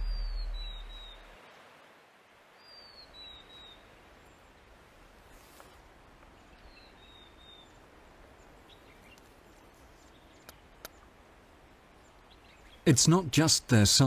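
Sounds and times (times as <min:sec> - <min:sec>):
high bird whistle: 0:00.0 - 0:01.3
quiet steady hiss: 0:00.0 - 0:14.0.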